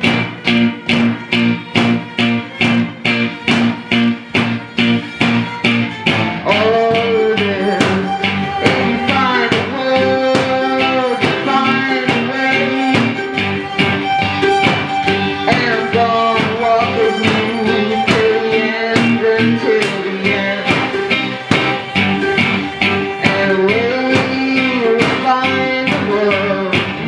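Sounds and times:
cello and violin bowing: 0.0 - 27.0
plucked strings: 0.0 - 27.0
woman singing into a microphone: 6.4 - 13.3, 15.4 - 21.1, 23.2 - 27.0.

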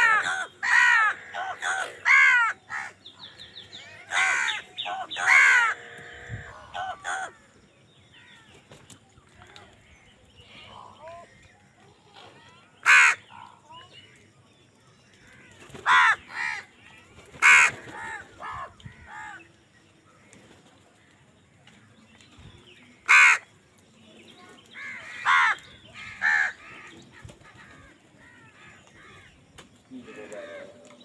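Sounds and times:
crows cawing: 0.0 - 7.5, 12.8 - 13.6, 15.2 - 16.8, 17.4 - 19.5, 23.0 - 23.5, 24.8 - 29.4.

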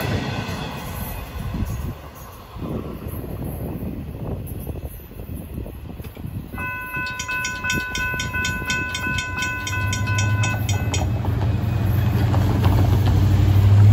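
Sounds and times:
railroad crossing bell ringing: 6.4 - 12.4.

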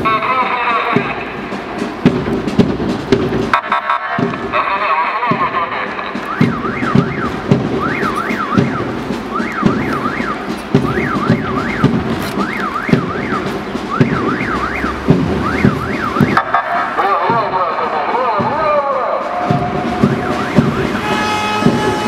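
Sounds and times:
irregular low thuds: 0.9 - 22.0
vehicle siren warbling: 6.1 - 22.0.

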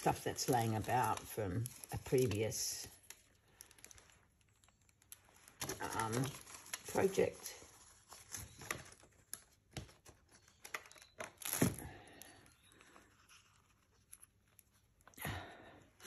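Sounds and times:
paper rustling and tearing: 0.0 - 11.8.

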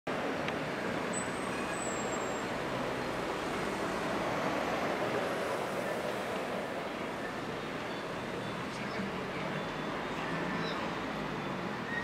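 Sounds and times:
city traffic rumble: 0.1 - 12.0
faint high squeal: 10.2 - 12.0.

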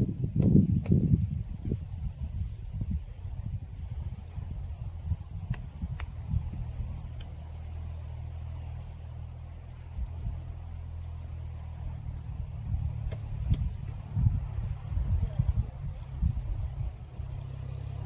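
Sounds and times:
wind buffeting microphone: 0.0 - 7.7, 9.9 - 10.5, 11.7 - 18.0
insect trill: 0.0 - 18.0
faint clicks: 7.1 - 7.4.

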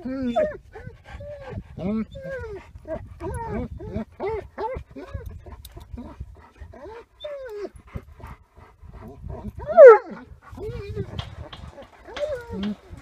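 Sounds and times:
dog whining: 6.8 - 7.7.

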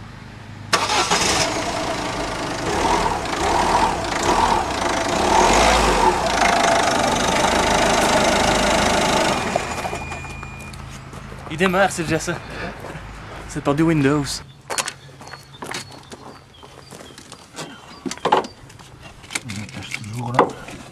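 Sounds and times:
diesel engine starting and running: 0.0 - 14.2.

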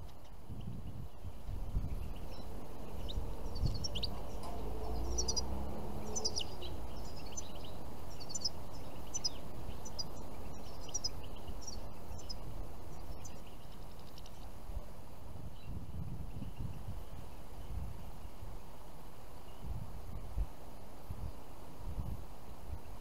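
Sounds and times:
low steady rumble: 0.0 - 18.2
songbirds chirping: 0.0 - 23.0.

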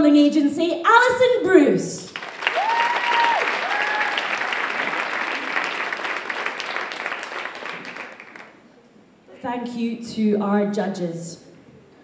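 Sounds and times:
audience applauding: 2.1 - 8.6
crowd whooping: 2.4 - 8.2.

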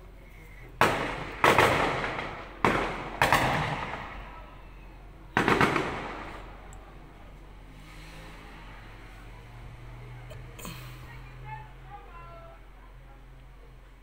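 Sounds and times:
gunshots: 0.8 - 4.5, 5.3 - 6.7.

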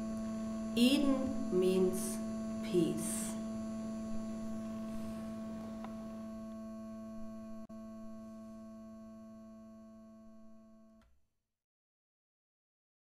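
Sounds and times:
humming drone: 0.0 - 10.8.

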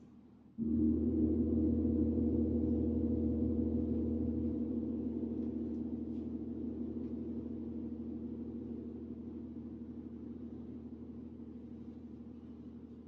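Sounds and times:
large gong ringing: 0.6 - 10.4.

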